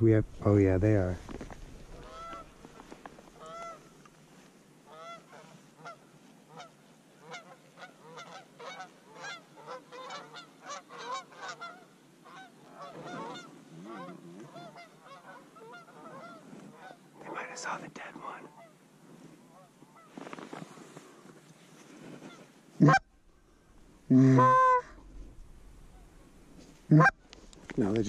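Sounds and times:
geese honking in flight: 2.0s - 2.8s, 3.4s - 3.8s, 4.9s - 17.0s, 22.3s - 23.1s, 24.2s - 26.2s, 26.9s - 27.3s.

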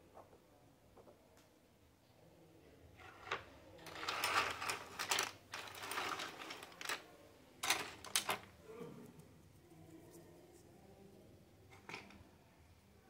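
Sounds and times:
plastic toy pieces rattling: 3.2s - 8.5s.

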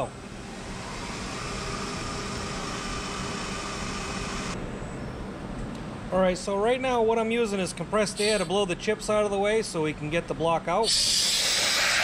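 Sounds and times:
milling machine hiss: 10.8s - 12.0s.

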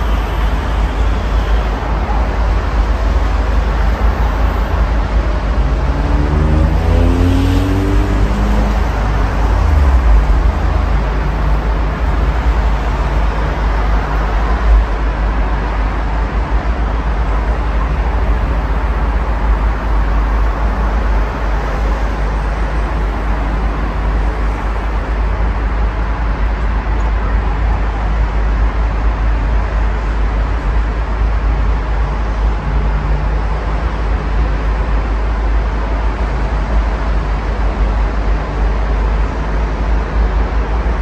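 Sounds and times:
road traffic noise: 0.0s - 41.0s.

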